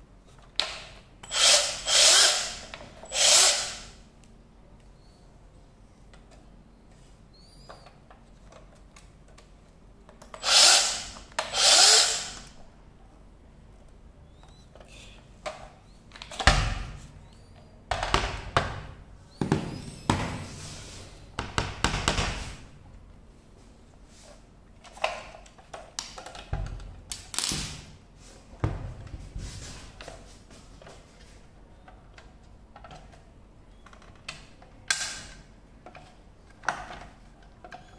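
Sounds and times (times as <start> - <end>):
clicks and knocks of parts: 24.8 - 27.8.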